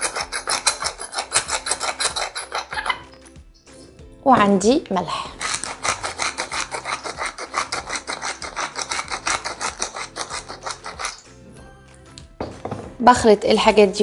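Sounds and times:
salt grinder grinding: 0.0 - 3.2, 5.2 - 11.4.

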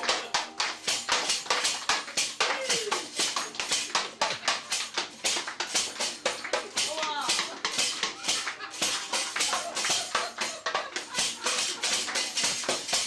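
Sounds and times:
hands clapping in rhythm: 0.0 - 13.0.

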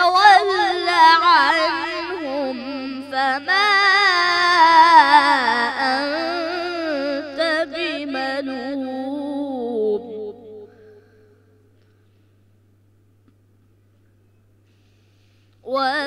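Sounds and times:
boy reciting melodically: 0.0 - 10.7, 15.6 - 16.0
short breath: 10.7 - 12.4, 14.6 - 15.6.

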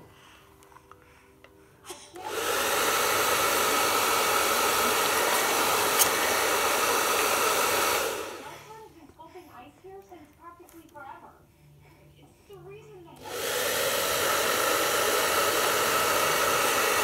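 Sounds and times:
hair dryer blowing: 2.1 - 8.8, 13.2 - 17.0.

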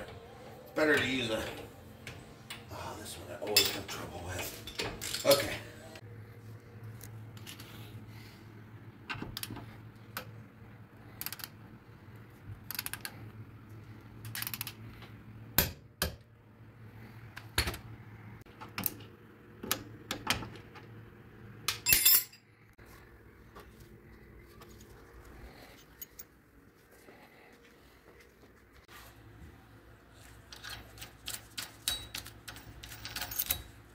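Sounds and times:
metal tools clinking: 3.4 - 5.7, 21.8 - 22.6, 25.7 - 26.4, 30.5 - 33.9.

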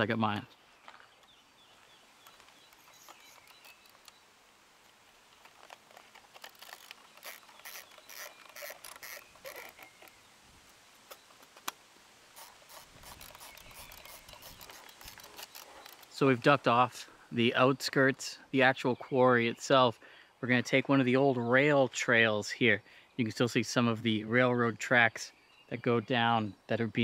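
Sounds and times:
small clicks: 4.8 - 10.2, 12.4 - 16.2.

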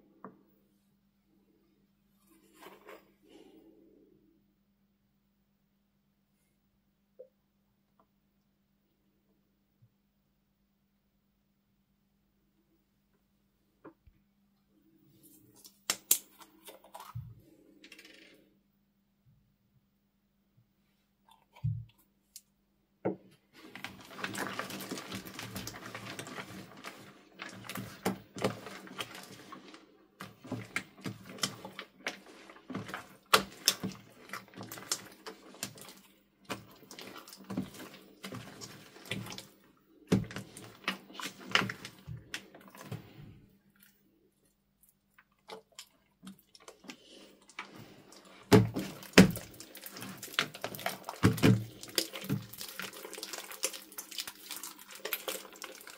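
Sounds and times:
slime squelching under spatula: 23.4 - 55.9
hands squishing slime: 23.6 - 55.9.

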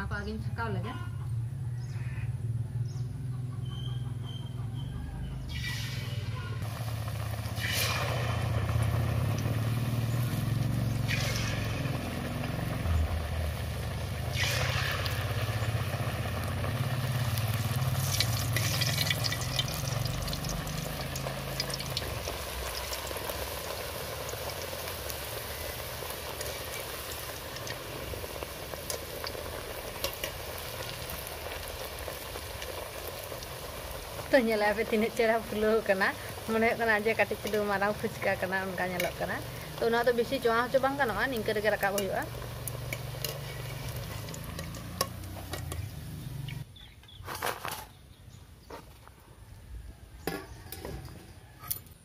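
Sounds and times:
dough sizzling in hot oil: 5.5 - 46.7.

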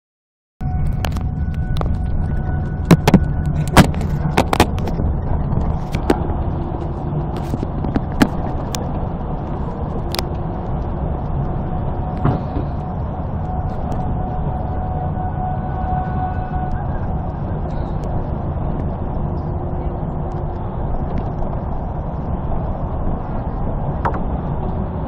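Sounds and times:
faint steady tone: 0.6 - 7.3, 8.7 - 24.2
vehicle road and engine noise: 0.6 - 25.0
sharp clicks and knocks: 2.8 - 5.0.

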